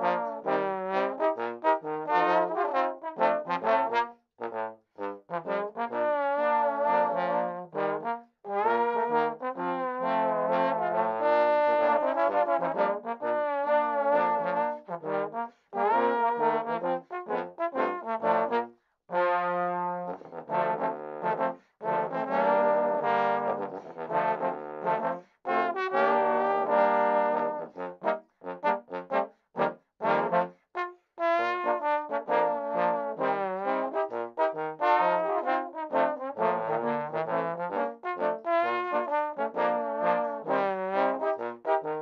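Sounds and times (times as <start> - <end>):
trombone quartet playing: 0.0 - 30.5, 31.2 - 42.0.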